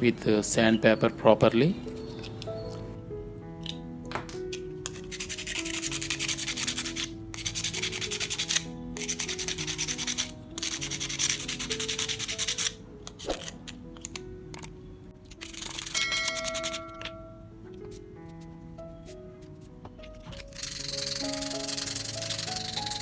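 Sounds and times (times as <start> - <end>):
sandpaper scraping metal: 4.8 - 13.6, 15.4 - 17.0, 20.3 - 23.0.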